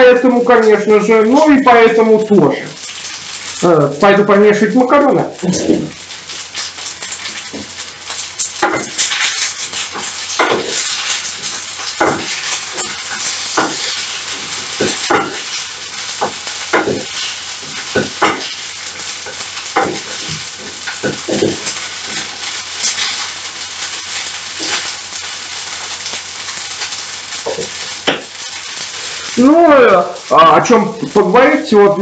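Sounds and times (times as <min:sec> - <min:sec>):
pasta sizzling in frying pan: 0:00.0 - 0:32.0
spatula scraping and knocking pan: 0:08.6 - 0:23.3.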